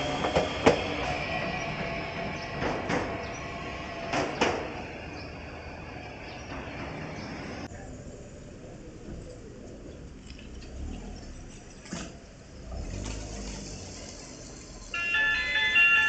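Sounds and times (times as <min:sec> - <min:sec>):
tram wheels clacking over rail joints: 0:00.0 - 0:07.7
tram rolling rumble: 0:00.0 - 0:16.0.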